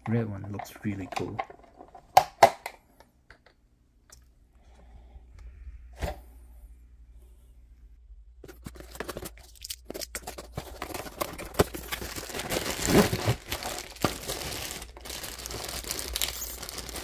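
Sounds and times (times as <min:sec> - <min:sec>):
packaging crinkling and tearing: 0:08.5 - 0:17.0.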